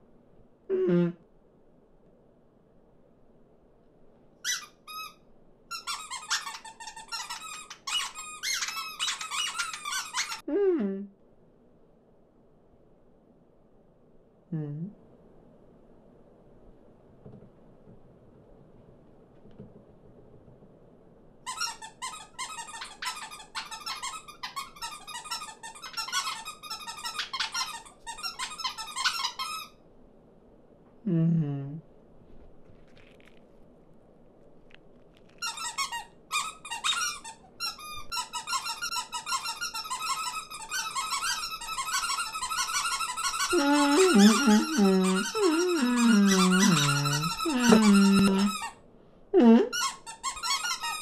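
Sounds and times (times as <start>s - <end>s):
cartoon birds chattering: 43.5s - 48.6s.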